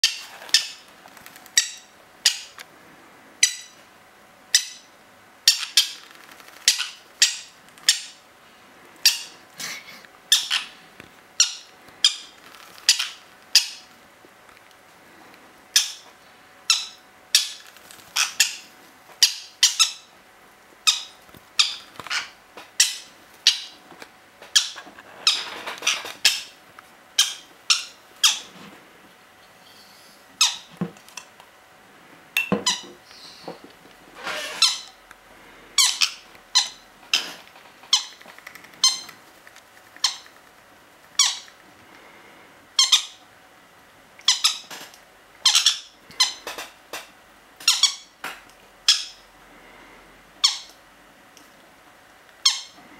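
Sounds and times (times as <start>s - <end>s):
parrot chicks squawking: 0.0s - 2.6s, 3.4s - 3.8s, 4.5s - 8.2s, 9.0s - 13.9s, 15.7s - 20.2s, 20.8s - 23.8s, 24.4s - 28.6s, 29.7s - 30.8s, 32.6s - 33.6s, 34.2s - 35.0s, 35.8s - 41.7s, 42.7s - 43.3s, 44.2s - 47.0s, 47.6s - 48.2s, 48.8s - 49.2s, 50.4s - 50.8s, 52.4s - 52.8s.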